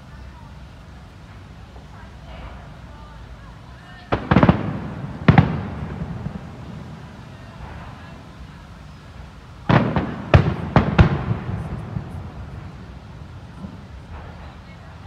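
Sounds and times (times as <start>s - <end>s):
firework shells bursting: 4.1s - 9.0s, 9.6s - 15.0s.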